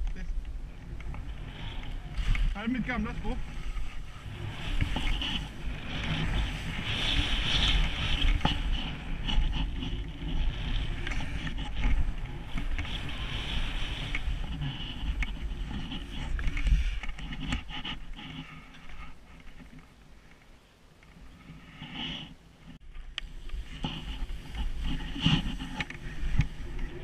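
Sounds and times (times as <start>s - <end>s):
wind rumble on microphone: 0.0s - 20.2s, 21.1s - 27.0s
skis hissing and scraping on snow: 1.0s - 19.3s, 23.3s - 27.0s.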